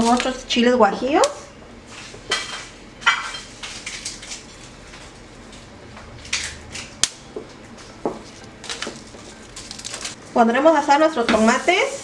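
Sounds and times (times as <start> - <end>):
dried chiles clicking and crackling: 3.6 - 7.5, 8.3 - 10.2.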